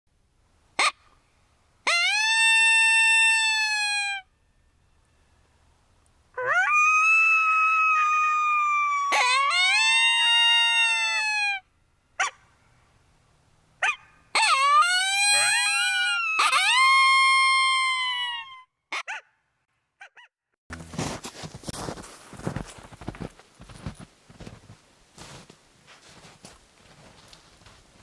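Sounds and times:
coyote howling: 6.4s - 11.6s, 13.8s - 19.2s
coyote yips: 13.8s - 19.3s, 20.0s - 20.3s.

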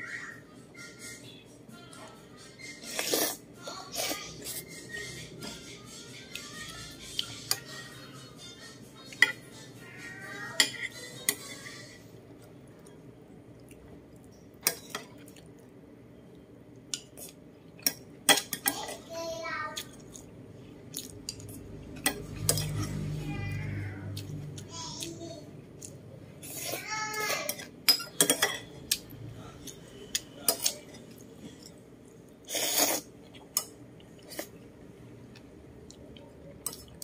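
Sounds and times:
metal spoon clinking on ceramic bowls: 27.5s - 28.7s.

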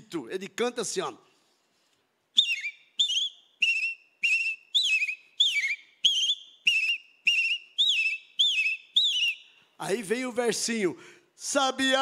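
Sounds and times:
man whistling birdsong: 2.4s - 9.6s.

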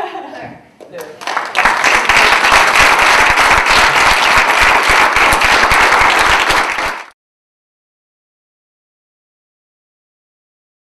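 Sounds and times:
audience applauding: 1.0s - 7.2s.

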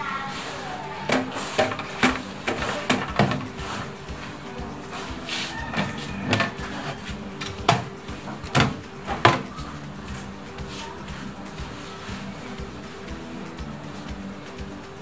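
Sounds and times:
plastic parts knocking and clicking: 1.1s - 3.9s, 5.7s - 9.7s.

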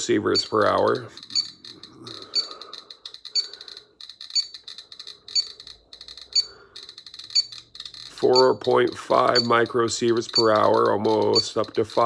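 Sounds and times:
geiger counter clicking: 0.0s - 12.0s.

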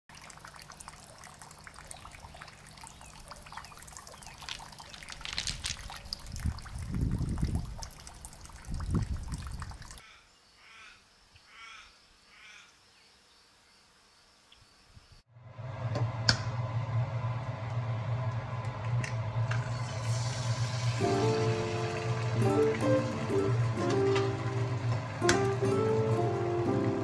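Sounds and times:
water trickling: 0.1s - 10.0s, 19.5s - 27.0s
wind rumble on microphone: 5.3s - 10.0s.

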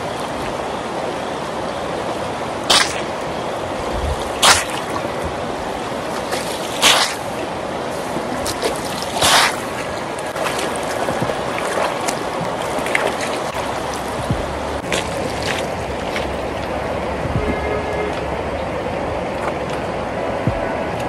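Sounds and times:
river running over stones: 0.0s - 21.0s
mat splashing into water: 2.6s - 3.2s, 4.0s - 18.3s.

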